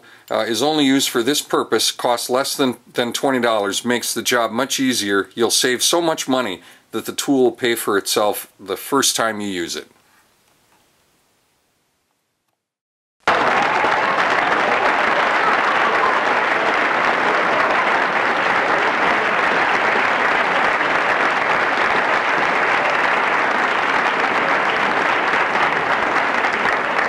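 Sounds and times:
applause: 0:13.2 - 0:27.0.

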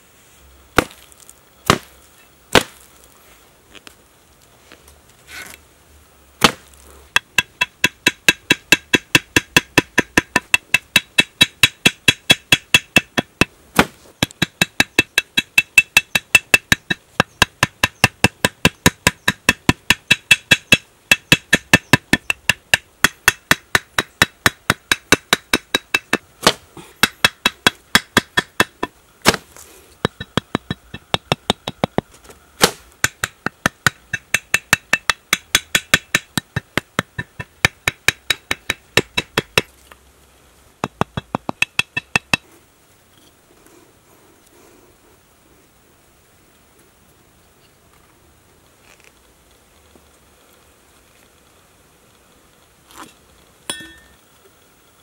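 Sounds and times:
rapid hollow knocks with ringing tone: 0:07.2 - 0:13.5, 0:14.2 - 0:28.9, 0:30.0 - 0:32.0, 0:32.6 - 0:39.7, 0:40.8 - 0:42.5.

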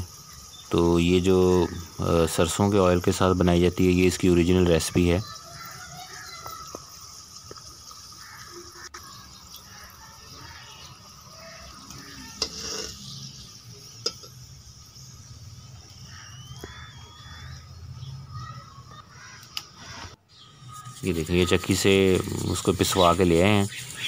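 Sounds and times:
oil sizzling in a pan: 0:00.0 - 0:19.3, 0:20.5 - 0:24.0
sharp clicks: 0:19.4 - 0:19.7.

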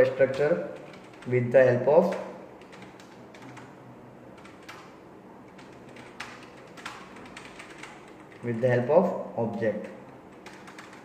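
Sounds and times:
keyboard typing clicks: 0:00.1 - 0:01.3, 0:05.5 - 0:08.5, 0:10.1 - 0:11.0.

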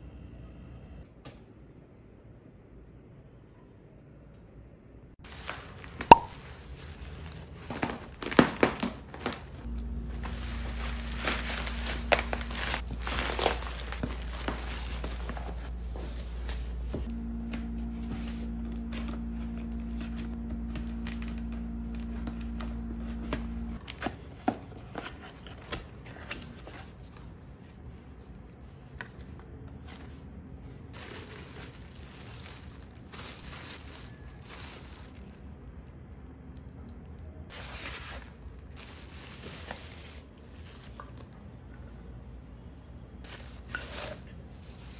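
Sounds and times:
plastic wrap rustling: 0:05.2 - 0:28.0, 0:29.8 - 0:35.6, 0:37.5 - 0:41.3, 0:43.2 - 0:44.9
plastic bag tearing and crinkling: 0:05.3 - 0:15.7, 0:30.9 - 0:35.4, 0:37.5 - 0:41.2, 0:43.3 - 0:44.9
steady low hum: 0:09.6 - 0:23.8.

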